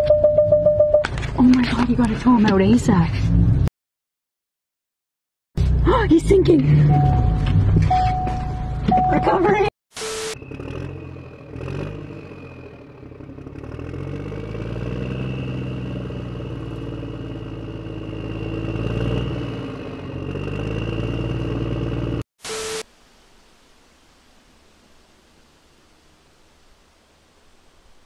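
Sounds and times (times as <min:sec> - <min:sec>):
truck engine revving: 0:10.3 - 0:22.2.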